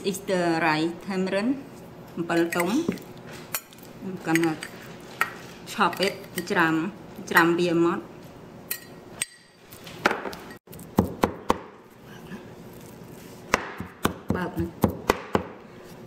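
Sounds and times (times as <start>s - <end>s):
knife chopping on wooden board: 11.0s - 11.8s, 13.5s - 15.6s.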